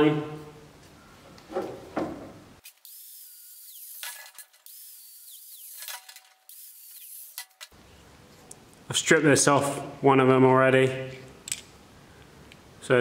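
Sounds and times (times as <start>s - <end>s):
angle grinder cutting hose: 2.6s - 7.7s.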